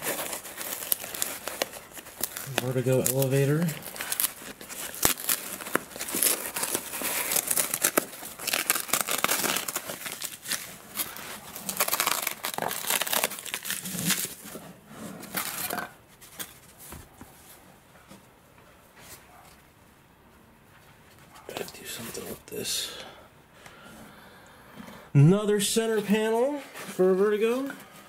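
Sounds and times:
packing tearing: 0:00.0 - 0:16.6
bubble wrap crinkling and rustling: 0:00.0 - 0:17.6.

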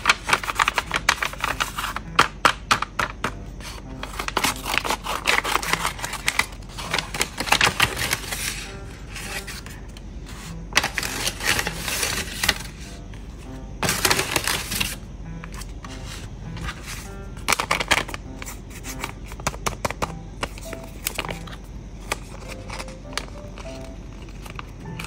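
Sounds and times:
scissors cutting paper: 0:00.0 - 0:02.0, 0:03.6 - 0:09.7, 0:10.7 - 0:12.8
paper crinkling and rustling: 0:00.0 - 0:25.0.

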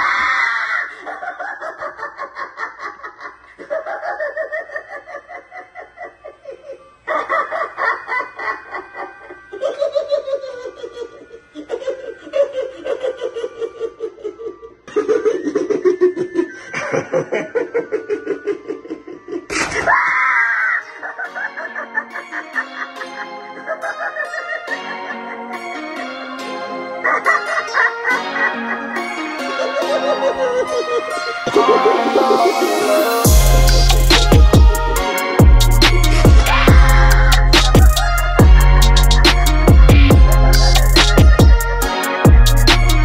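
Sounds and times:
recorded evil clown laughter: 0:00.0 - 0:25.6, 0:27.0 - 0:34.5.

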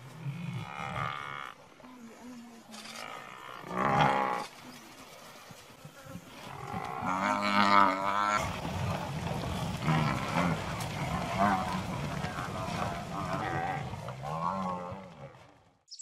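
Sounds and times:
buffalo bawling: 0:06.4 - 0:15.4.

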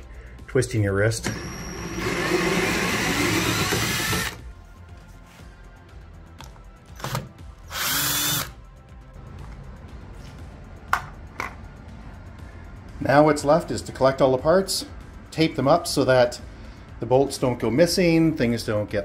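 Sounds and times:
cordless drill running: 0:01.2 - 0:04.4, 0:07.0 - 0:08.6.

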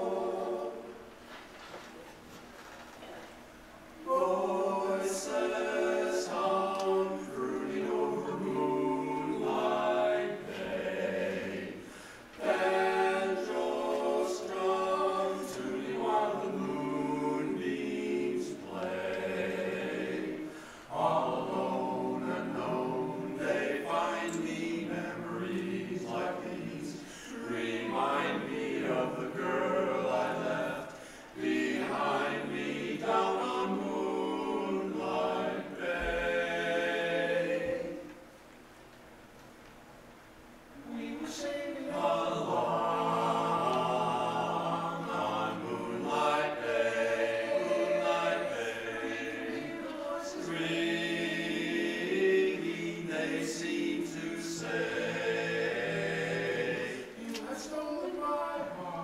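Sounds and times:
men singing in harmony: 0:40.9 - 0:59.0.

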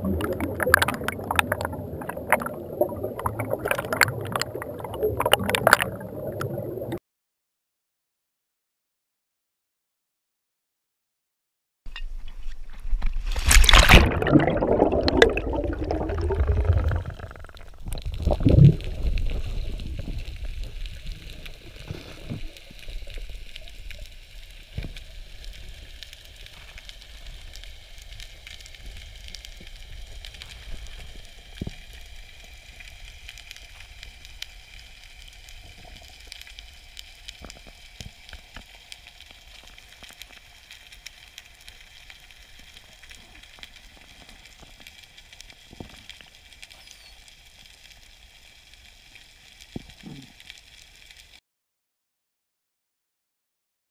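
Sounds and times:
underwater clicks and crackle: 0:00.0 - 0:07.0, 0:11.9 - 0:51.4
underwater rush of bubbles: 0:00.0 - 0:07.0, 0:13.2 - 0:25.9
underwater sea hiss: 0:18.8 - 0:29.2.

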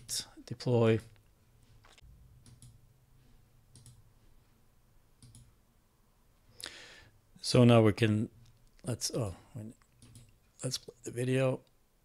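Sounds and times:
computer mouse clicks: 0:02.4 - 0:02.8, 0:03.7 - 0:04.0, 0:05.2 - 0:05.5, 0:09.8 - 0:10.4.

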